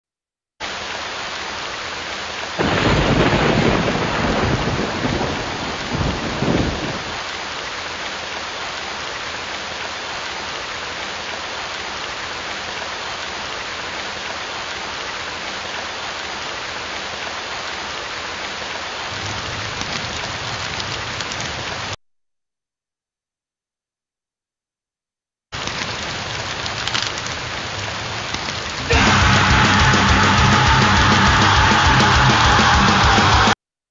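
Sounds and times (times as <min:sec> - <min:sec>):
heavy rain: 0:00.6 - 0:22.0, 0:25.6 - 0:33.6
rolling thunder: 0:02.6 - 0:07.2
crackling: 0:25.6 - 0:30.3.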